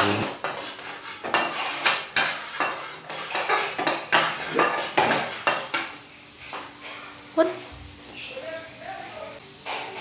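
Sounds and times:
utensil scraping frying pan: 0:00.0 - 0:07.3, 0:09.6 - 0:10.0
food sizzling in hot oil: 0:00.0 - 0:10.0.

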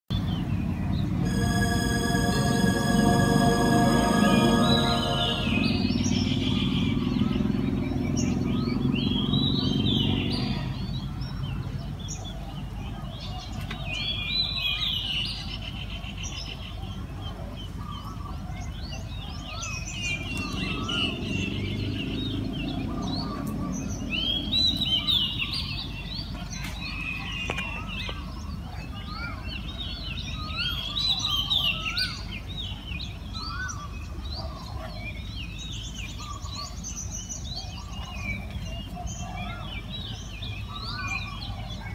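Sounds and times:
music: 0:01.2 - 0:06.6.

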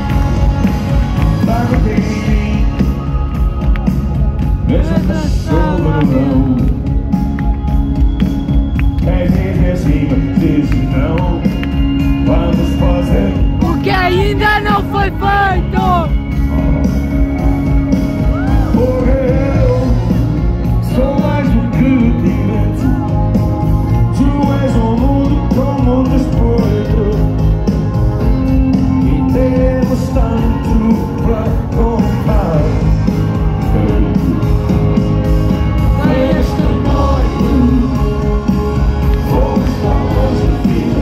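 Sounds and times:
rock band playing: 0:00.0 - 0:41.0
person singing: 0:04.6 - 0:07.0.

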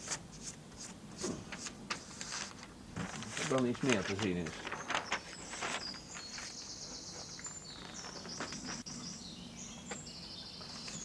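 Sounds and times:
paper rustling: 0:00.0 - 0:06.8, 0:07.4 - 0:09.0.

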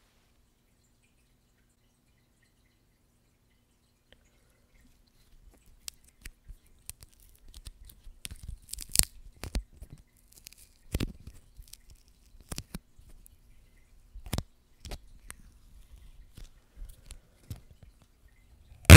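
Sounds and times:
tape peeling and crackling: 0:05.7 - 0:12.8.

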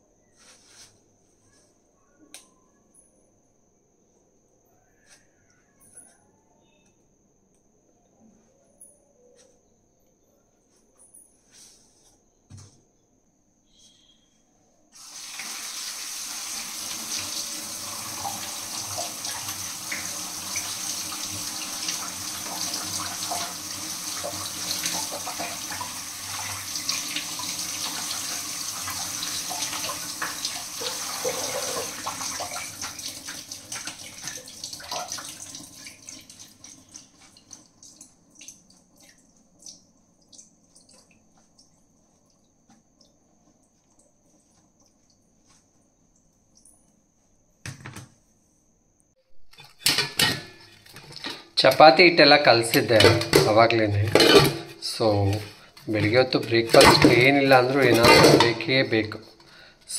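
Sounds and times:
water running from a tap: 0:15.0 - 0:45.2, 0:49.9 - 0:59.9.

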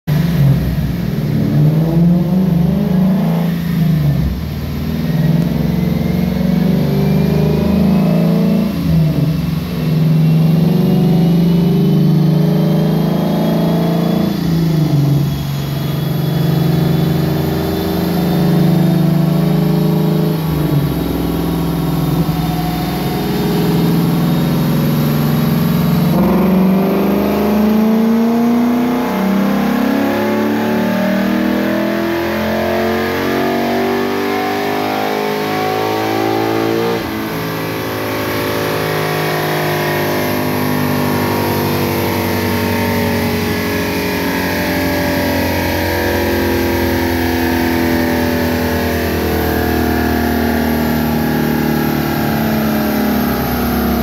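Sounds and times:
car engine revving hard: 0:00.1 - 0:54.0.

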